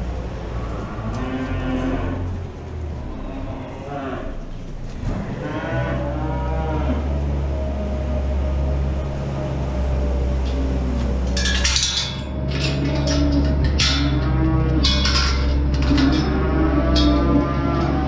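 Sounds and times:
steady low hum: 0.0s - 18.0s
cows mooing: 0.3s - 18.0s
gate chain and latch clanking: 9.8s - 18.0s.

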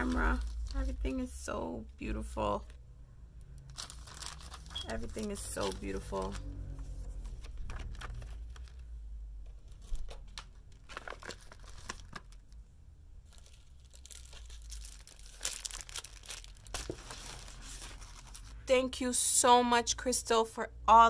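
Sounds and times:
gift packaging crinkling: 0.0s - 1.3s, 3.5s - 9.0s, 9.6s - 12.6s, 13.2s - 18.6s.

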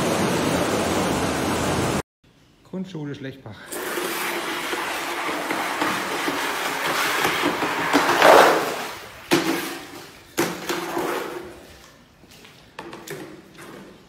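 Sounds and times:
water swished by broom: 3.8s - 12.1s.

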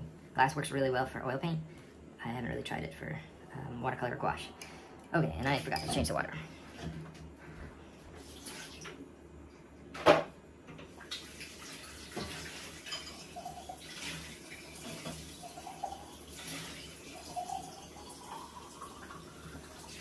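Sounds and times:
tap water running and splashing: 8.2s - 9.0s, 10.7s - 20.0s.

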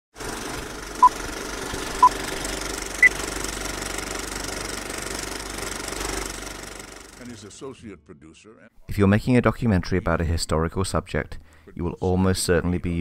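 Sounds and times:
film projector clatter: 0.2s - 7.4s.

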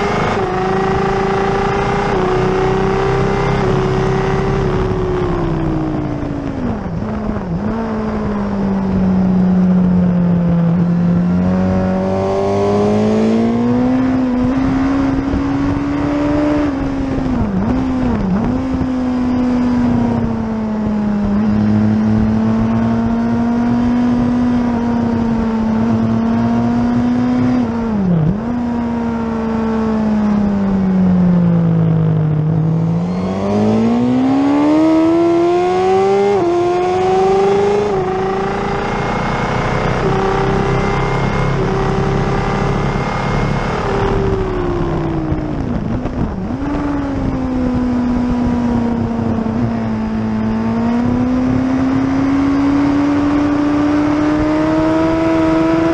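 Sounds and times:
motorcycle engine at high revs: 0.0s - 55.9s
wind noise rushing: 9.8s - 29.0s, 32.5s - 55.9s.

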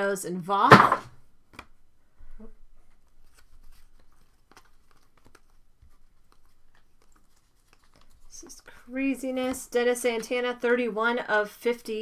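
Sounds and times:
trading cards being flipped: 2.9s - 8.6s.

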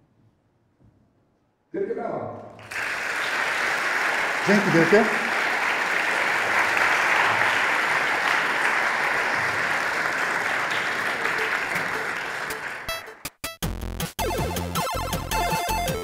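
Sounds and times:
audience applauding: 2.5s - 13.4s.

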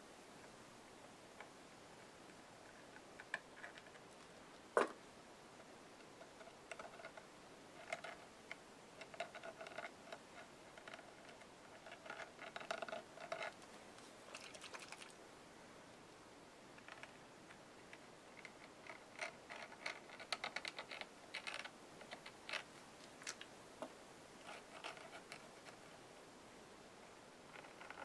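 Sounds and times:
light clicks and crackling creaks: 5.6s - 15.2s, 16.8s - 26.0s, 27.5s - 28.0s.

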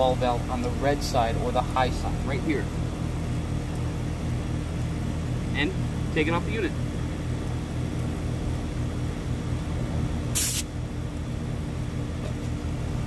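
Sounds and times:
condenser unit humming: 0.0s - 13.0s
refrigerant hiss: 10.3s - 10.7s.

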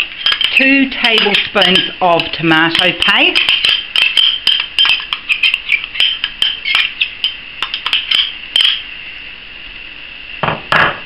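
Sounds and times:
metal spoon clinking on frying pan: 0.2s - 8.8s.

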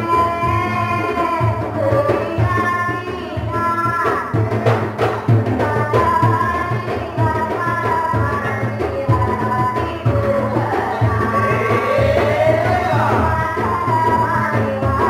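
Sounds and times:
hand drums beating: 0.0s - 15.0s
wavering melody: 10.8s - 13.3s.

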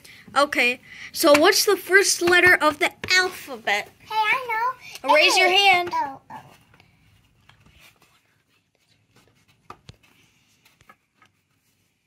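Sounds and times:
toy figures tapping on plastic: 1.2s - 3.3s.

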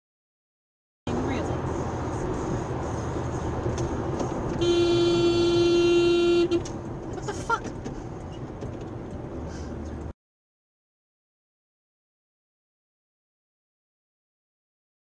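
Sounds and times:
road and tyre noise: 1.1s - 10.2s
car horn blaring: 4.5s - 6.8s.

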